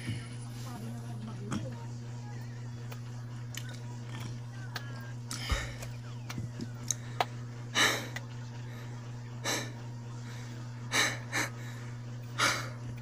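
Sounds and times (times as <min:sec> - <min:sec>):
steady low hum: 0:00.0 - 0:13.0
person breathing: 0:06.9 - 0:12.9.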